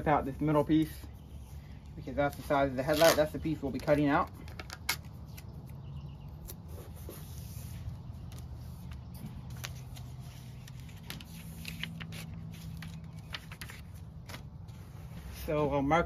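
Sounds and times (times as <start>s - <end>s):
paper rustling and crinkling: 2.0s - 5.7s, 6.4s - 15.6s
paper tearing: 2.4s - 4.0s.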